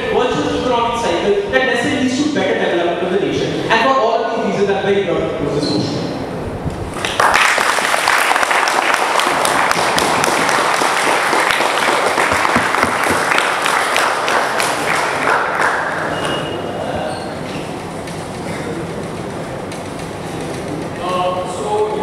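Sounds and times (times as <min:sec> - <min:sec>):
audience applauding: 0:07.0 - 0:16.4.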